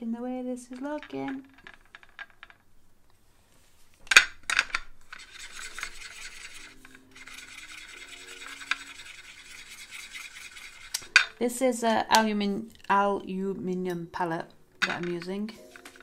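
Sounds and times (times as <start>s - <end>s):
marker scraping paint palette: 5.1s - 11.3s.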